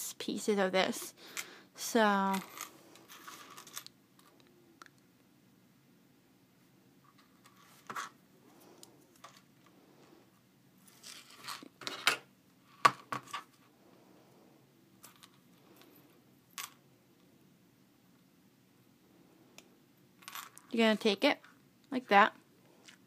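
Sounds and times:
metal chain clinking: 2.2 - 3.9.

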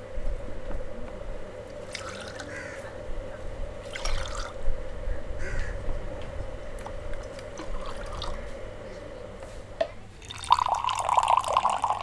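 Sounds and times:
steady hum: 0.0 - 12.0
crows cawing: 2.2 - 3.0, 5.4 - 5.9.

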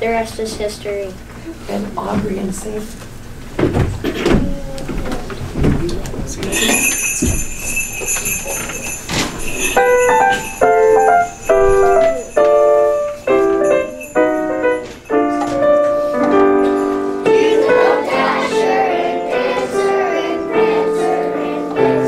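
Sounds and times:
small bells ringing: 6.5 - 15.8
piano chords and notes: 9.1 - 22.0.

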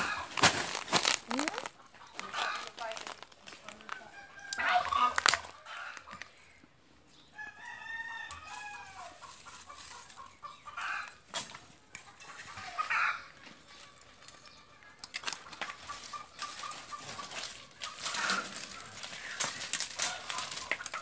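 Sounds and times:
rooster crowing: 4.0 - 6.0, 7.4 - 9.2.

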